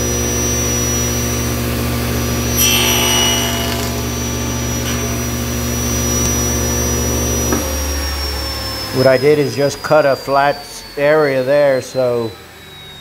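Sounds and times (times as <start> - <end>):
table saw running: 0.0 - 13.0
saw blade cutting wood: 2.5 - 6.6.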